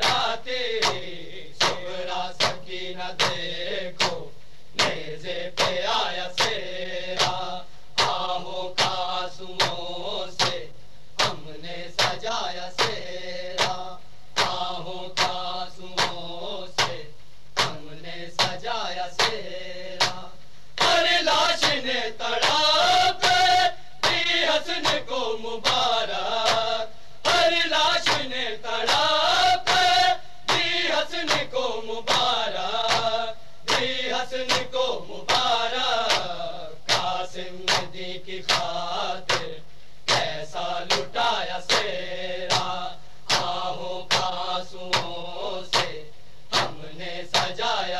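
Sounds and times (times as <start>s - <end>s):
men chanting lament: 0.0s - 47.9s.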